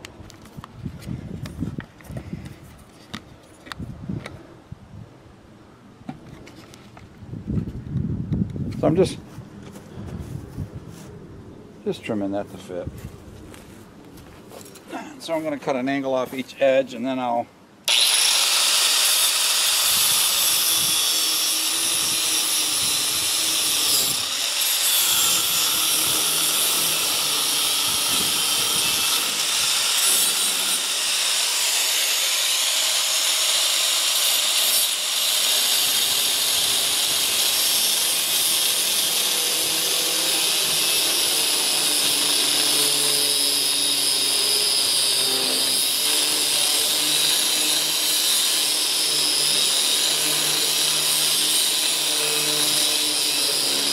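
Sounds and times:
angle grinder cutting metal: 17.9 - 53.9.

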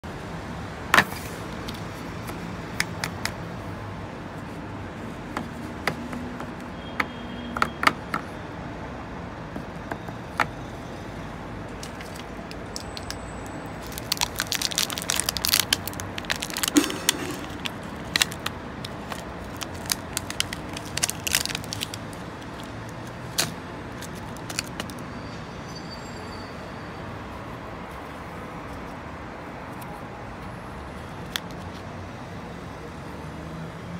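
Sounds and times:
crackling clicks: 11.8 - 22.7.

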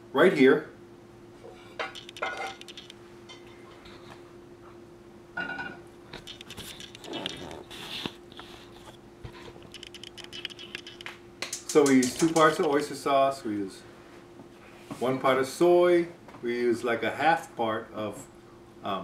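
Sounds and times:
steady hum: 0.0 - 19.0
small clicks: 2.0 - 3.0, 6.1 - 8.5, 9.6 - 12.8
rustling handling noises: 6.1 - 12.9.

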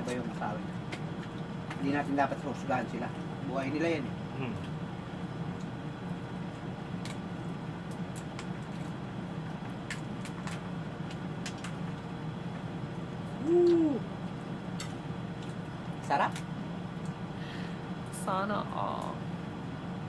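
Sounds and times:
steady low hum: 0.0 - 20.0
man hooting: 13.4 - 14.1.

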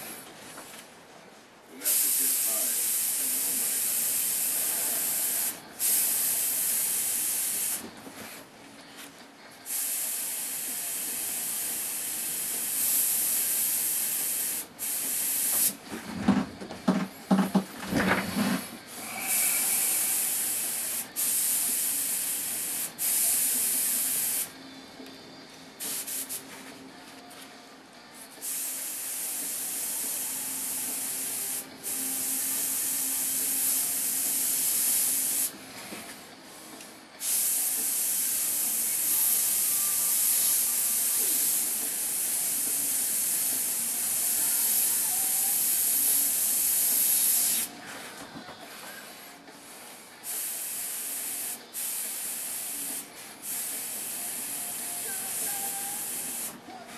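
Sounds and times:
airbrush spraying hiss: 1.8 - 7.8, 9.7 - 15.8, 18.9 - 24.5, 25.8 - 26.6, 28.2 - 35.6, 37.2 - 47.7, 50.2 - 56.6
knocking and clattering: 15.9 - 18.6.

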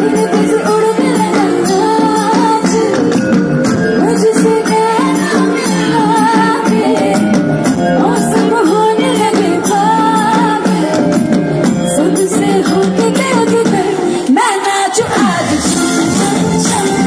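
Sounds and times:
live band accompaniment: 0.0 - 17.0
woman singing: 0.0 - 17.0
steady percussive beat: 15.2 - 17.0.

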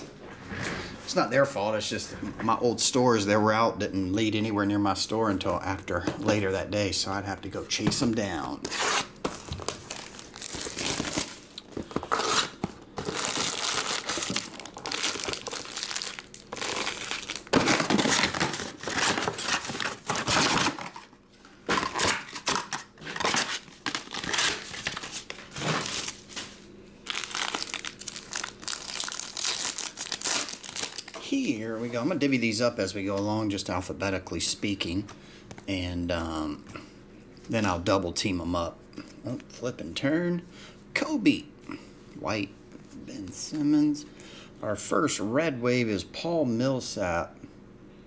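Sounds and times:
shrink-wrap crinkling and tearing: 8.2 - 21.1, 21.7 - 31.2
foil card packs tearing: 8.4 - 31.2.

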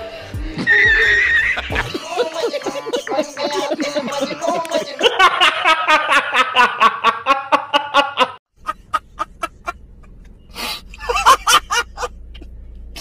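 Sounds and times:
man laughing hysterically: 0.6 - 9.8, 10.9 - 12.3
man cackling: 0.7 - 9.8, 10.9 - 12.2.

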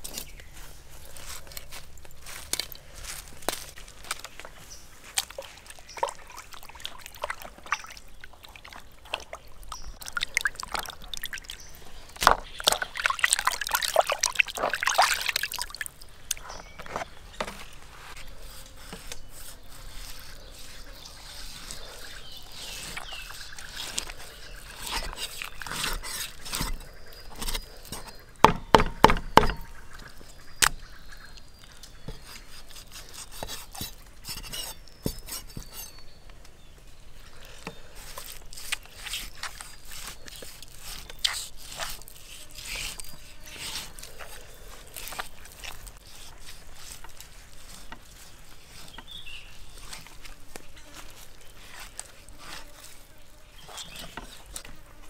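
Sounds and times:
liquid trickling and sloshing: 5.2 - 16.4.

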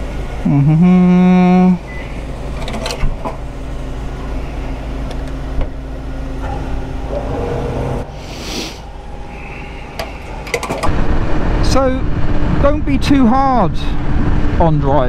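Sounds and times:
fuel pump humming: 0.0 - 12.6
fuel nozzle clunk: 2.0 - 3.5, 10.0 - 10.9
brief hiss: 8.2 - 8.9.

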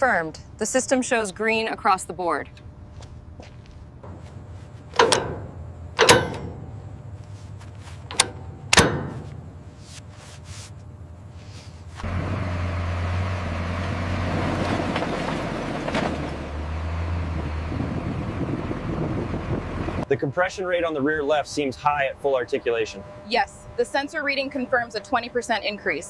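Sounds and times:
steady rumbling with low hum: 0.0 - 26.0
sharp ringing clanks: 4.0 - 9.7.

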